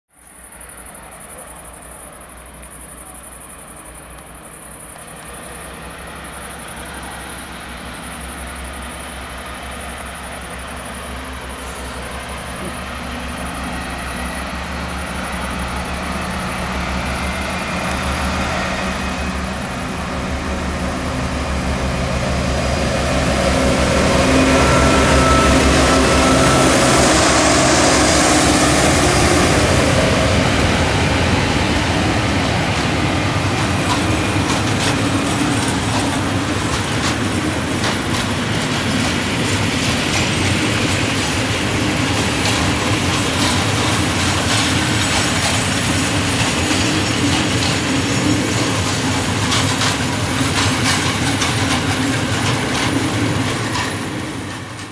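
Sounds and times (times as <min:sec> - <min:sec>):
diesel locomotive engine working hard: 0:00.2 - 0:54.9
wagon wheels clattering over rail joints: 0:32.4 - 0:54.9.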